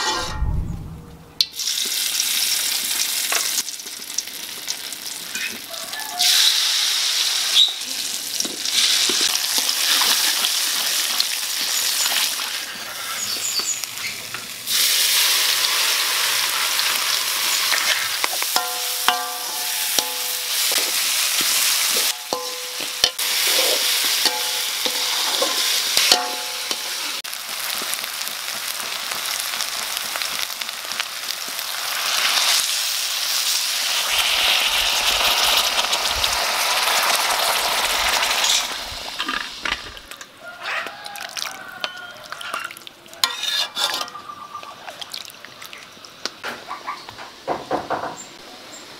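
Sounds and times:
metal spatula scraping pan: 0.0s - 0.8s, 17.7s - 27.2s, 43.2s - 44.4s
paste sizzling in wok: 1.6s - 40.2s, 41.0s - 44.2s
water poured into hot wok: 31.7s - 40.2s.

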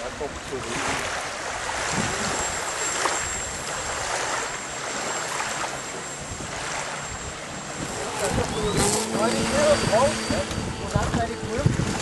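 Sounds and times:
small waves lapping at shore: 0.0s - 12.0s
thin high whine: 2.0s - 12.0s
wind rushing: 6.2s - 12.0s.

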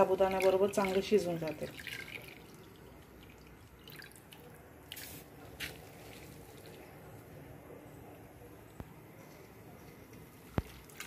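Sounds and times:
short wet splashes: 0.0s - 6.8s, 10.4s - 11.0s.

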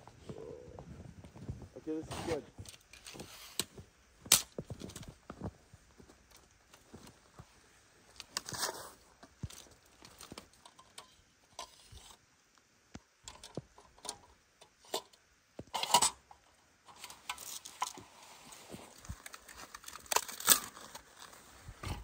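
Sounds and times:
rustling and crunching of handling: 0.0s - 12.3s, 15.6s - 22.0s.

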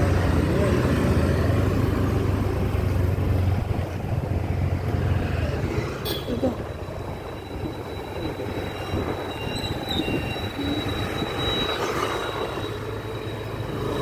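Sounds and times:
traffic hum: 0.0s - 14.0s
thin high whine: 6.3s - 14.0s.

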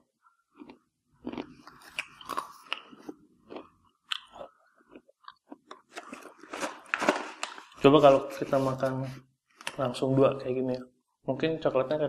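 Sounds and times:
crisp chips being chewed: 0.5s - 7.8s.

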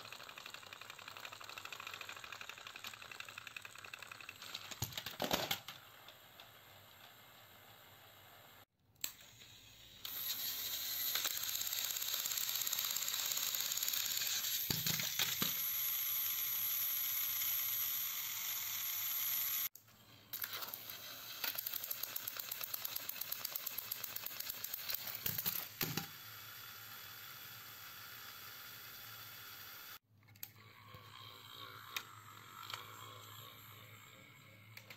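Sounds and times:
gears and wheels clicking on track: 0.0s - 7.4s, 10.0s - 19.7s, 20.3s - 30.0s
toy train motors whirring: 0.0s - 34.9s.

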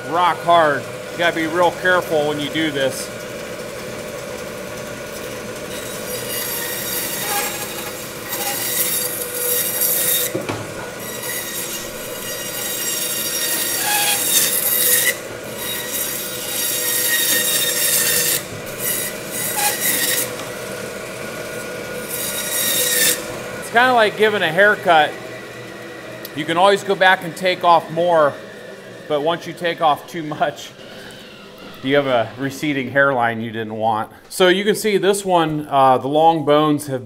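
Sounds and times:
bandsaw humming: 0.0s - 36.3s
saw blade rasping through bone: 5.7s - 20.6s, 22.0s - 23.4s.

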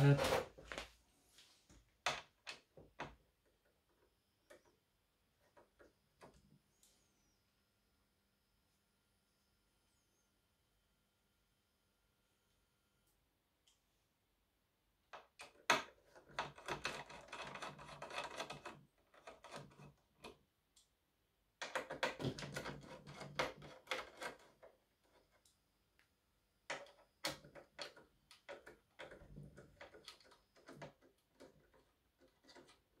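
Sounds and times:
screwdriver clicking and scraping: 15.4s - 20.4s.

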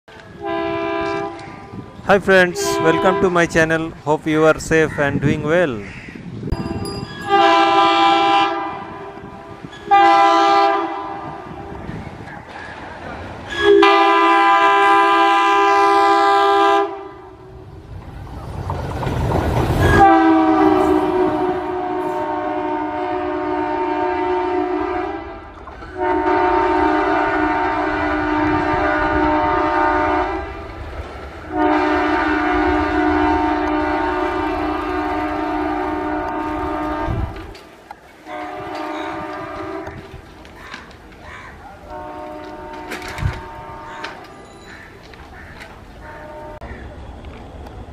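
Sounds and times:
locomotive air horn blasts: 0.3s - 1.6s, 2.5s - 3.6s, 7.2s - 11.7s, 13.5s - 17.3s, 19.8s - 30.7s, 31.5s - 37.5s, 38.2s - 40.1s, 41.9s - 44.2s, 46.2s - 46.6s.

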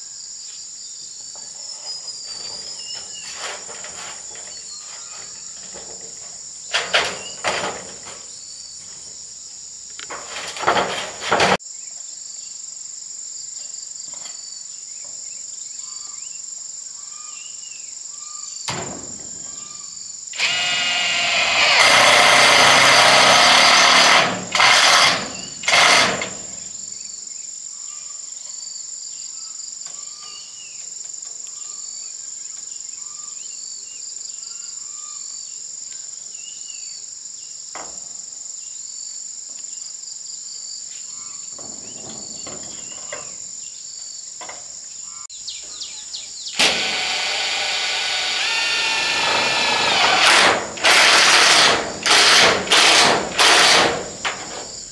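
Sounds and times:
high insect buzz: 0.0s - 54.9s
power tool bursts: 20.3s - 26.7s, 46.5s - 54.7s.

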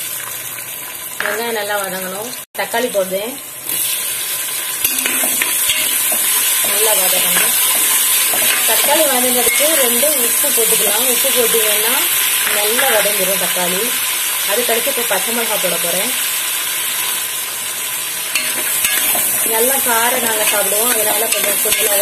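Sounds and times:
onions sizzling in hot oil: 0.0s - 22.0s
stirring in a pot: 4.8s - 9.6s, 18.3s - 22.0s.

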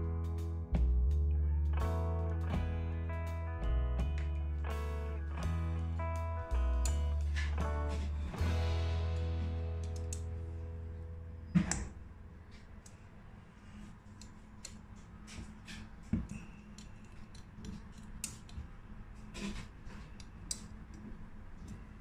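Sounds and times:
metallic clicks and scrapes: 12.5s - 22.0s.

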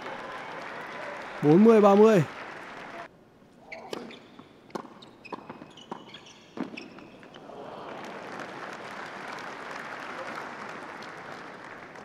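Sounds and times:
crowd applauding: 0.0s - 3.1s, 7.4s - 12.0s
shoe squeak on court: 3.6s - 7.3s.

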